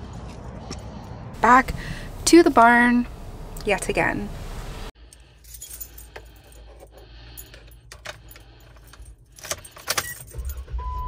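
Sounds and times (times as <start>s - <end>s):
car engine starting: 1.4s - 5.0s
car keys jangling: 5.2s - 10.7s.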